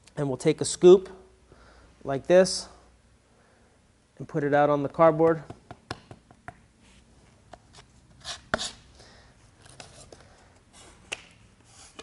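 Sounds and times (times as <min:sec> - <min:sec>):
trowel scraping on cardboard: 0:08.2 - 0:08.8.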